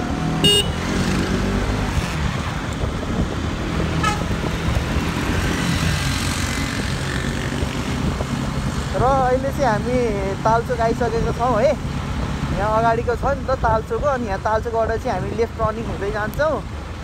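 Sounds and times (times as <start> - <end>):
passing traffic: 0.0 - 17.0
wind and road noise: 0.0 - 17.0
horn toot: 0.4 - 1.0.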